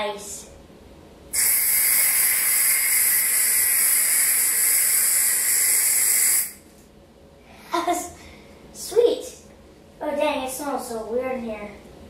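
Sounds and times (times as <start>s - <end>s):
aerosol can spraying hiss: 1.4s - 6.6s.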